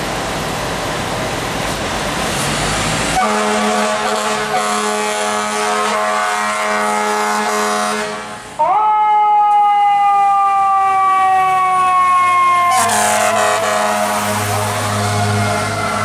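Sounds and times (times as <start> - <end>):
fire truck air horn blast: 3.2 - 8.5, 12.4 - 16.0.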